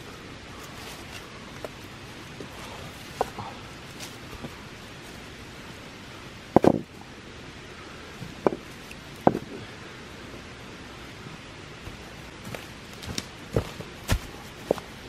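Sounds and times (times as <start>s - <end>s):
steady hiss: 0.0s - 15.0s
rocks and log knocking: 6.5s - 6.9s, 8.4s - 9.5s.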